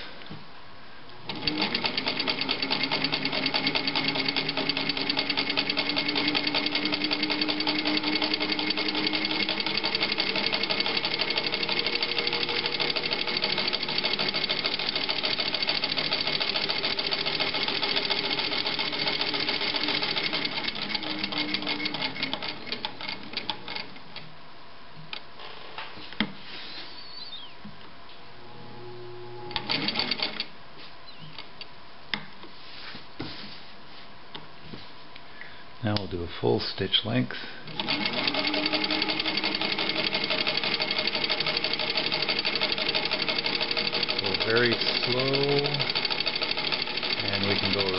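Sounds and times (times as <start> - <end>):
sewing machine clatter: 1.3 - 23.9, 29.6 - 30.5, 37.8 - 47.9
sewing machine motor whine: 1.3 - 23.9, 28.4 - 30.5, 37.7 - 47.9.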